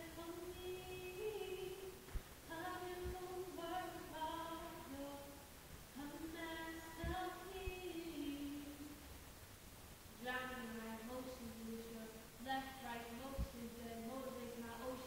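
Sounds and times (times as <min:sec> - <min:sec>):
woman singing solo: 0:00.0 - 0:05.4
soft low thumps: 0:02.0 - 0:03.4, 0:05.0 - 0:08.2.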